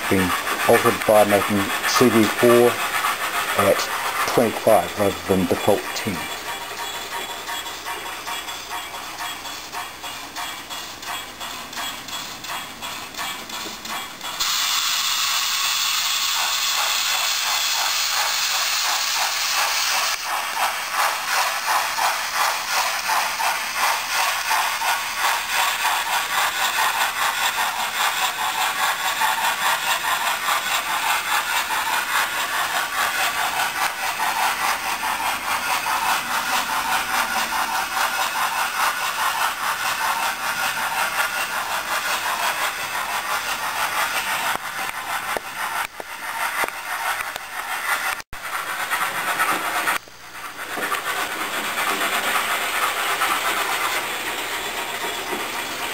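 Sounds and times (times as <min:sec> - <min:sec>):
rapid exhaust chuffs: 0:00.0 - 0:06.2
steam hiss: 0:00.0 - 0:08.3, 0:08.9 - 0:55.9.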